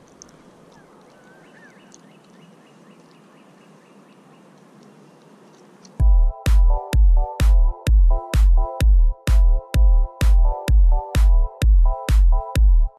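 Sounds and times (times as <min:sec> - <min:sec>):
soft bird chirps: 0:00.0 - 0:06.0
electronic dance music: 0:06.0 - 0:12.9.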